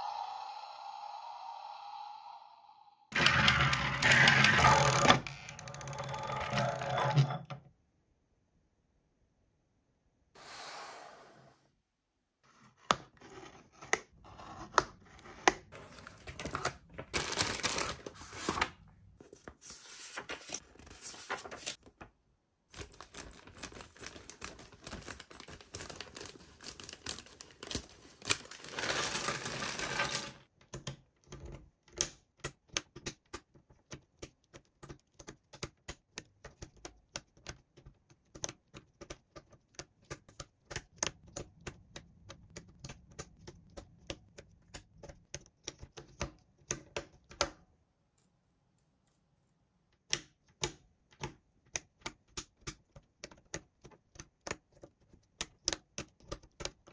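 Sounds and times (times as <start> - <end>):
toy packaging rustling and tearing: 15.7 - 18.6, 22.7 - 30.4.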